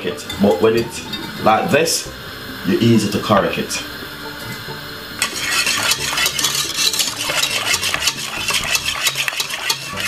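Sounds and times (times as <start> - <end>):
spoon scraping and clinking pot: 5.2 - 10.0.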